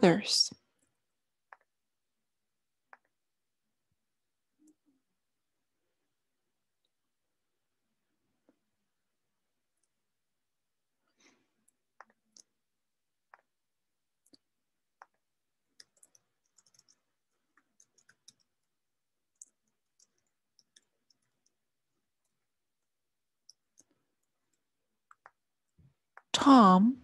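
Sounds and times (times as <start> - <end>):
typing on computer keyboard: 15.0 - 18.6, 19.3 - 21.6.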